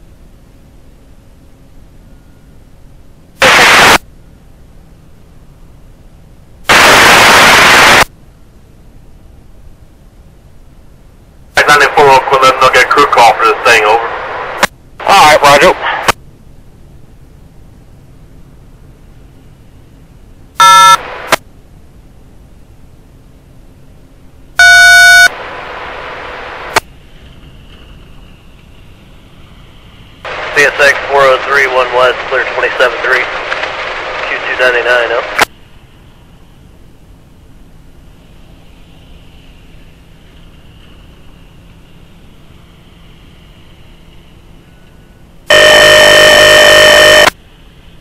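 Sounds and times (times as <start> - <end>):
low hiss: 0.0 - 24.6, 25.2 - 48.0
radio static bursts: 3.4 - 4.0, 6.7 - 8.1, 11.6 - 16.2, 20.6 - 21.4, 24.6 - 26.8, 30.3 - 35.5, 45.5 - 47.4
touch-tone beeps: 20.6 - 21.0, 24.6 - 25.3.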